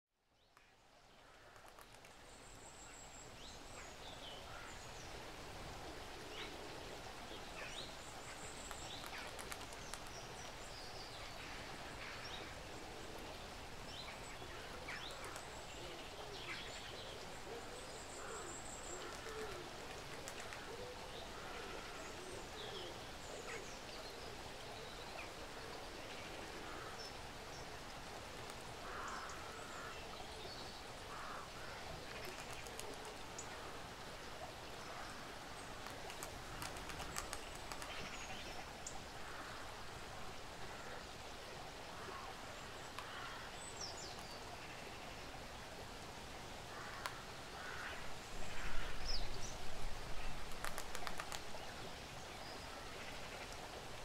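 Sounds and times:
steady outdoor hiss: 0.1 - 54.0.

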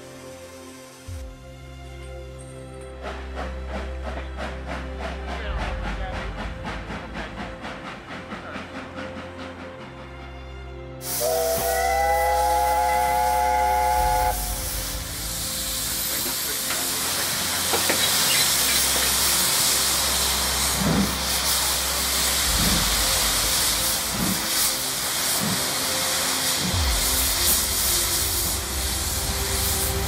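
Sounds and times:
locomotive exhaust beats: 11.0 - 30.0
steam hissing: 11.0 - 30.0
steam locomotive chime whistle: 11.0 - 30.0.

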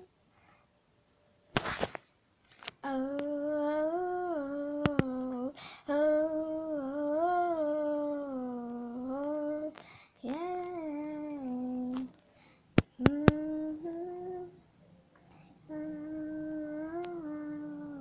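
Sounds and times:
girl humming: 2.8 - 12.2, 12.8 - 14.6, 15.7 - 18.0
sharp clicks: 4.8 - 5.2.

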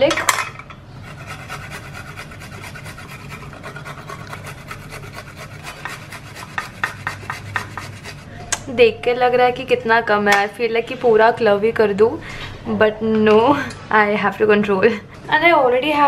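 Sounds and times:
garlic rasping on grater: 1.0 - 8.3.

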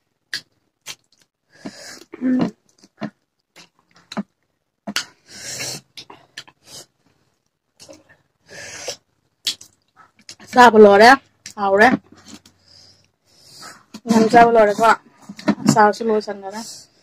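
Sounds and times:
wet mouth smacks: 9.4 - 10.4.

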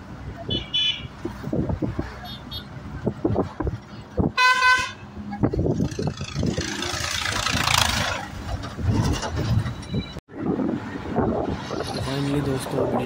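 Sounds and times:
bus running heard from inside: 0.0 - 13.0
vehicle horn toot: 0.5 - 1.1, 4.4 - 5.0.

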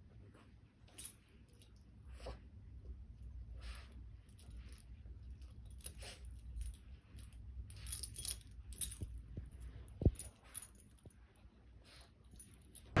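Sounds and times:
dog collar tags jingling: 4.3 - 11.1.

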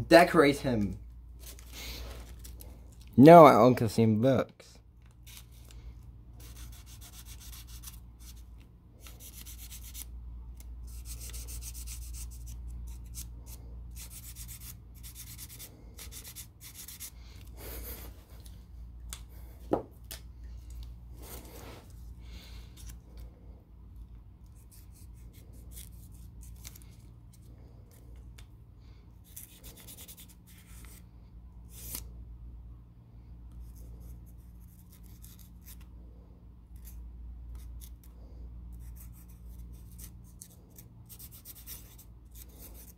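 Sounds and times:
steady low hum: 0.0 - 42.9
marker scratching on paper: 6.4 - 8.5, 10.8 - 13.2, 14.0 - 17.1, 41.1 - 42.9.

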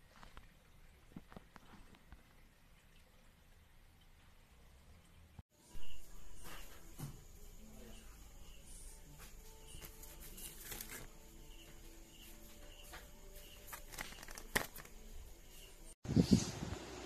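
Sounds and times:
blister pack clicks and crinkles: 13.7 - 15.0.

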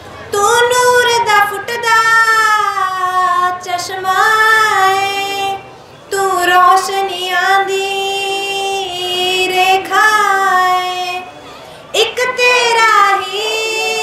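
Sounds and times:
woman singing devotional song: 0.3 - 14.0.

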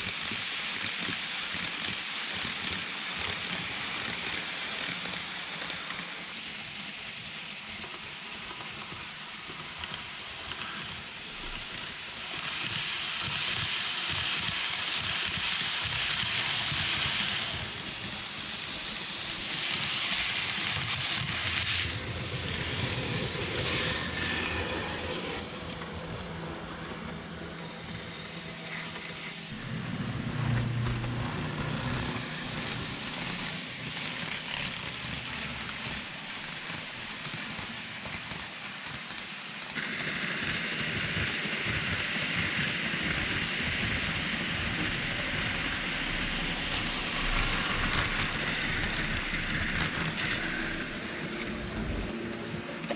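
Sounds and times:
model train wheels rattling: 0.0 - 29.4, 30.4 - 52.9.

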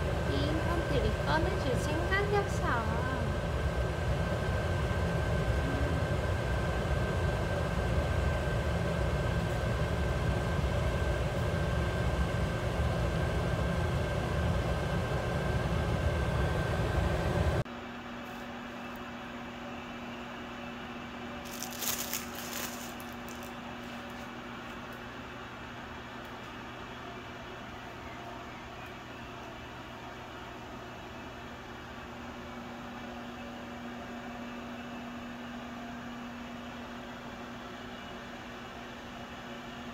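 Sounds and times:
blower rushing with high whine: 0.0 - 17.6.

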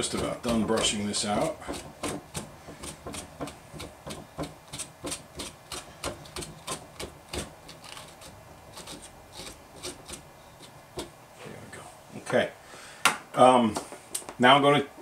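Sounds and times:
brush scratching wire brush fibers: 0.0 - 11.1.

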